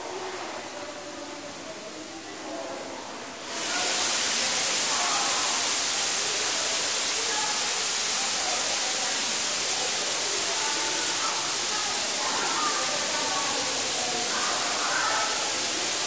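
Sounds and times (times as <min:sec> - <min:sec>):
faint voices murmuring: 0:00.0 - 0:16.0
misting system spraying hiss: 0:03.4 - 0:16.0.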